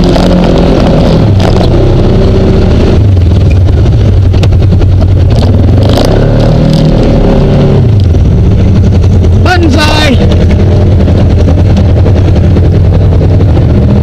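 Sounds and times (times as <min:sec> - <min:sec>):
off-road vehicle engine: 0:00.0 - 0:14.0
sharp clicks and knocks: 0:03.3 - 0:05.4, 0:10.2 - 0:12.0.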